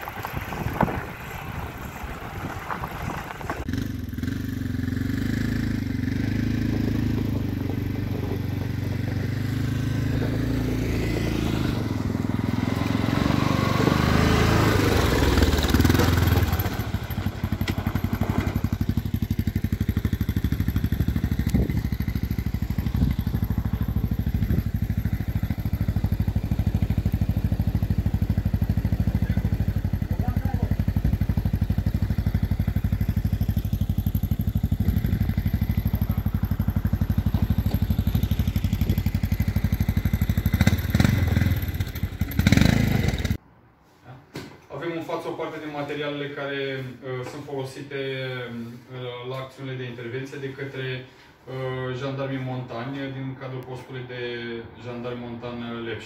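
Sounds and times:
atv engines running: 0:00.0 - 0:43.4.

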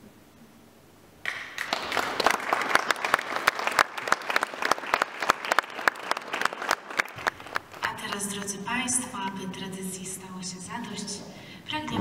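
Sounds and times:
crowd applauding: 0:01.2 - 0:08.2.

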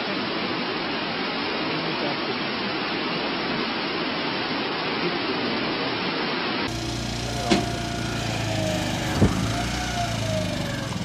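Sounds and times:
steady rushing hiss: 0:00.0 - 0:11.0.

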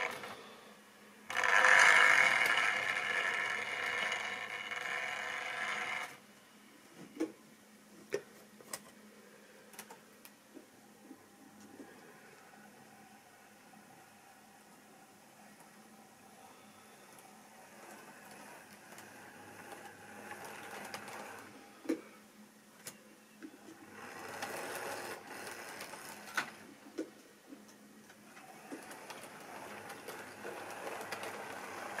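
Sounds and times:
model train motor whirring: 0:00.0 - 0:00.4, 0:01.3 - 0:06.2, 0:17.5 - 0:21.5, 0:23.8 - 0:26.7, 0:28.4 - 0:32.0
wheels clicking over rail joints: 0:28.4 - 0:32.0.

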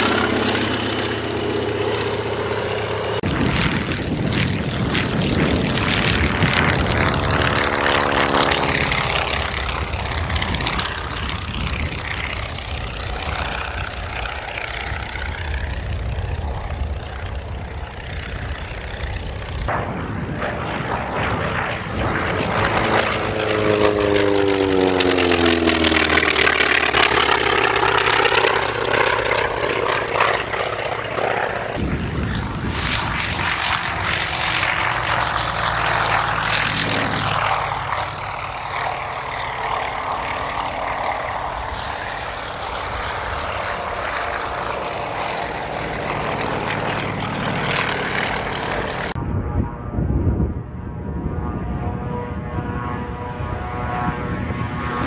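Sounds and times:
propeller aircraft passing: 0:00.0 - 0:55.0.

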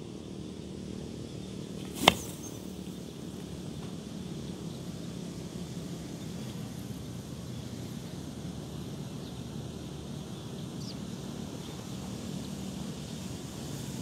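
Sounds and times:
faint high chirp: 0:01.8 - 0:03.1.

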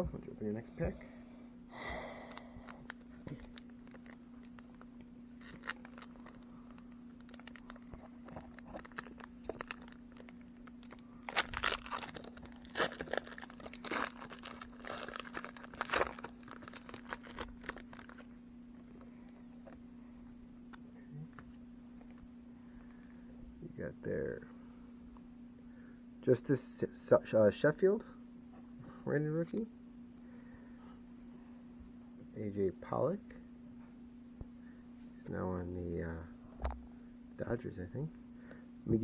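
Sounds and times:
steady low hum: 0:00.0 - 0:39.0
card pack wrapper crinkling: 0:02.2 - 0:18.4.

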